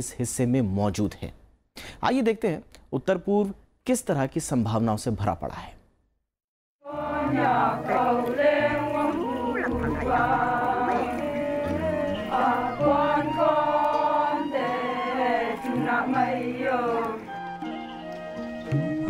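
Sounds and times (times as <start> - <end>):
group of voices chanting: 6.9 - 17.2.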